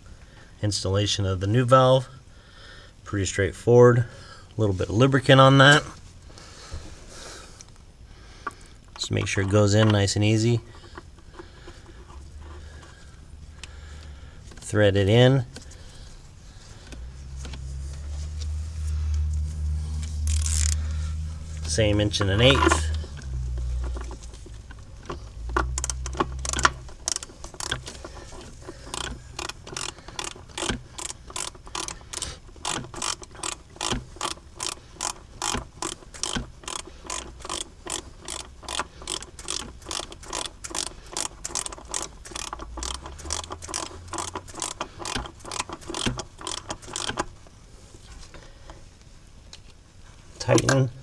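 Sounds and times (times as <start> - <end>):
ratchet clicking: 20.0 - 47.4.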